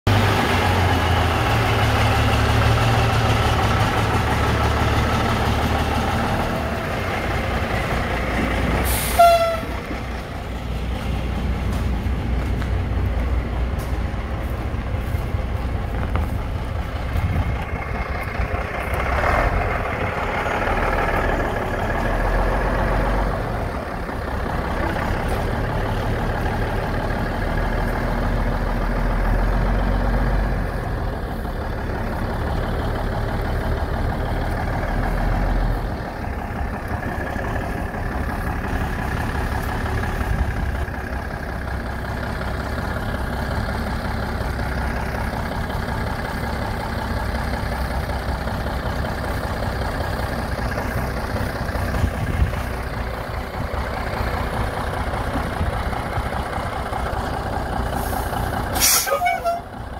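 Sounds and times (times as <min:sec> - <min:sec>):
truck engine running: 0:00.1 - 0:59.9
loud air hiss with whistle: 0:58.8 - 0:59.5.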